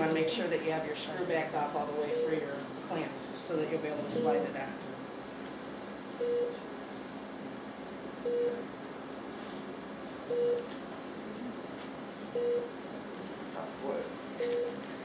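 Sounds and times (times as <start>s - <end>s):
room hum: 0.0s - 15.0s
low electronic beep: 8.2s - 8.6s.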